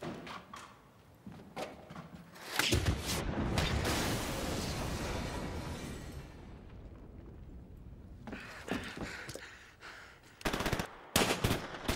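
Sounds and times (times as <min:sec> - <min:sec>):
deep rumble with debris: 0:03.2 - 0:09.4.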